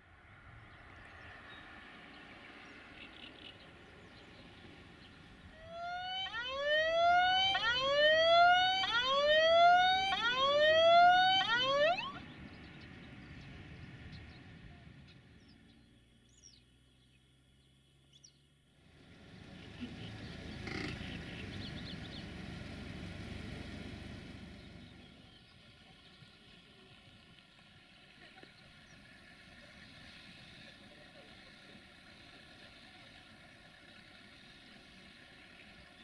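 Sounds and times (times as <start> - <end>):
rising electronic siren whoops: 5.5 - 12.2.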